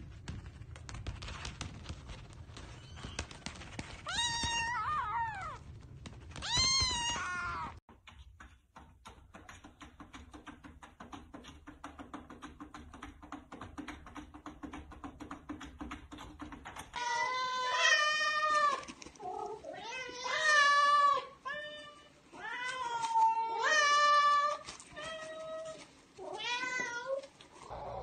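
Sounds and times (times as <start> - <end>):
kitten meowing: 4.1 - 5.6, 6.4 - 7.8.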